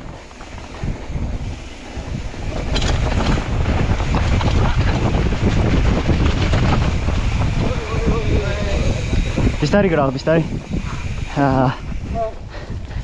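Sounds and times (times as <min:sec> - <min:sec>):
bike rattling over rough ground: 0:00.0 - 0:13.0
wind buffeting microphone: 0:00.0 - 0:13.0.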